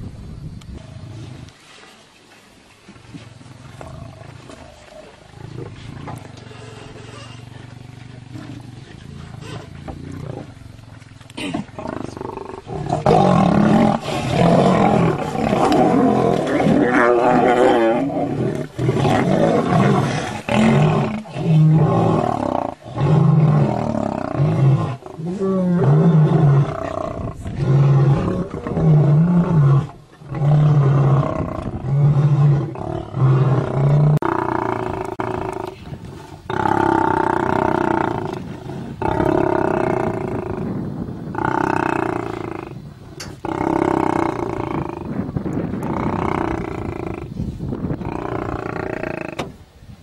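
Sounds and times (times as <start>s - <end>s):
lions snarling and growling: 3.4s - 49.5s
lion grunting roars: 11.4s - 49.5s.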